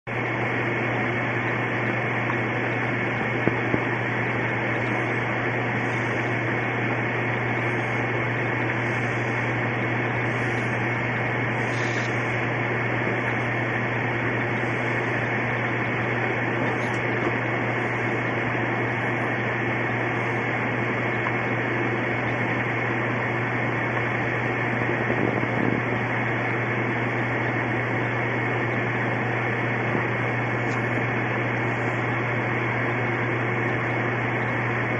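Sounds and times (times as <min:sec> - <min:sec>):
low hum: 0:00.1 - 0:34.9
steady hiss: 0:10.3 - 0:12.4.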